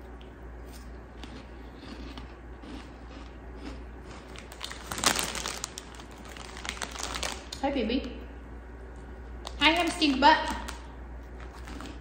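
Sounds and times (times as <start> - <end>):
person chewing crunchy snack: 0.7 - 7.3, 11.3 - 12.0.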